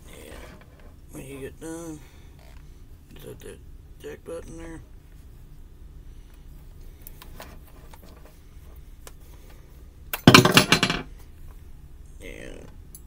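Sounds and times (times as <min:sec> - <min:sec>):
metal beaters rattling: 0:10.2 - 0:11.1.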